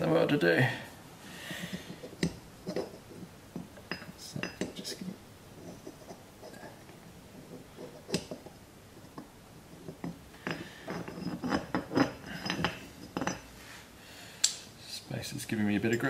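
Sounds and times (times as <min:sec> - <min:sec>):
metal parts clinking and knocking: 0:09.1 - 0:13.5.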